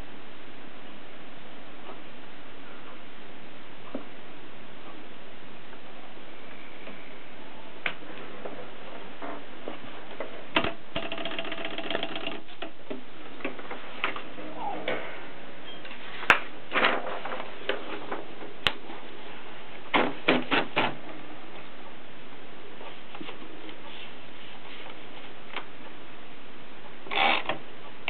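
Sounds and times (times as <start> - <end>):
typewriter ratchet rattling: 10.6 - 12.4.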